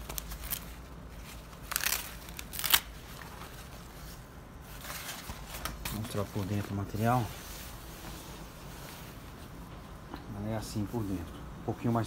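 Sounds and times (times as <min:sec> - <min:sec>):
stiff plastic rustling: 0:00.0 - 0:08.0
velcro rasps: 0:01.6 - 0:03.0.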